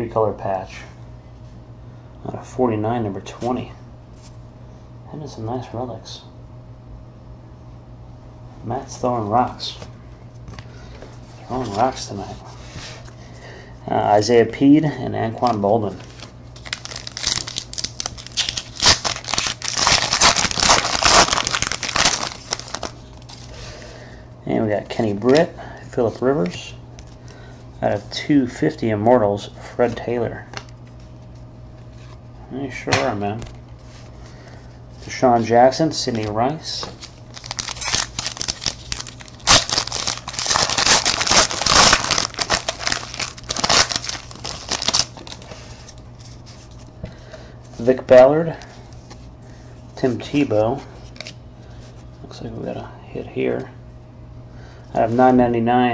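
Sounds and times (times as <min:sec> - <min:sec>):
wrapper crinkling: 0:16.0 - 0:23.6, 0:36.2 - 0:46.9.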